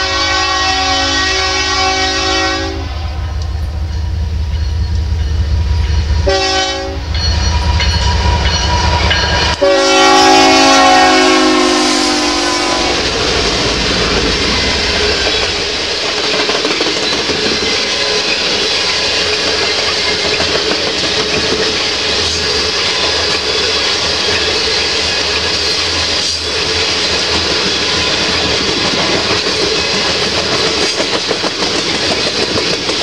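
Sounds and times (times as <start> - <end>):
locomotive air horn blasts: 0.0 - 3.4, 6.2 - 7.1, 9.6 - 13.2
train wheels clickety-clack: 13.0 - 33.0.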